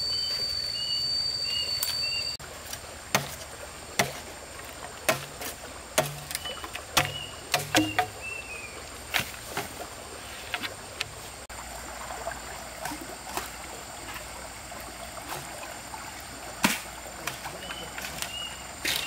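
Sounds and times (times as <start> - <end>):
steady outdoor hiss: 0.0 - 19.0.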